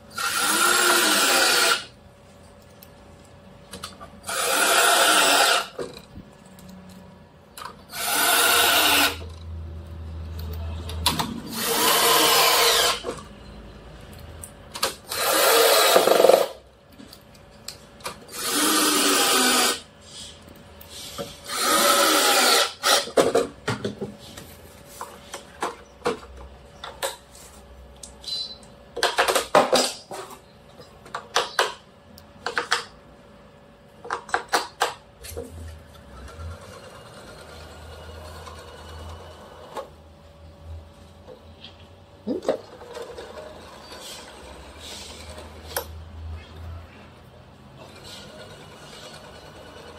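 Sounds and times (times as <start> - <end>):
cordless drill driving screws: 0.2 - 1.9, 4.2 - 5.8, 7.9 - 9.2, 11.5 - 13.1, 15.1 - 16.5, 18.3 - 19.8, 21.4 - 23.2.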